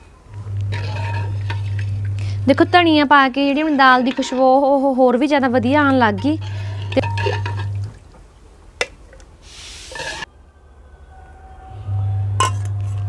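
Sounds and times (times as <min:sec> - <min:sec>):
low steady hum: 0:00.0 - 0:09.4, 0:10.0 - 0:13.0
metal ladle and spoon clinking: 0:03.8 - 0:04.7, 0:06.1 - 0:07.9
spoon clinking on steel bowl: 0:06.2 - 0:07.8.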